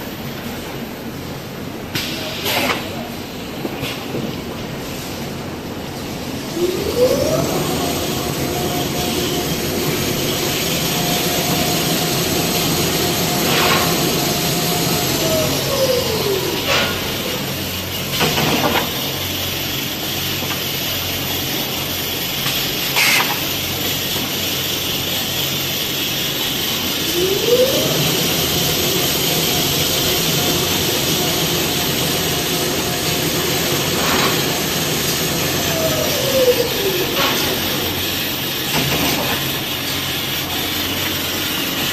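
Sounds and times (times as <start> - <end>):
production line machinery running: 0.0 - 41.9
motor whine: 6.0 - 20.8, 23.4 - 41.9.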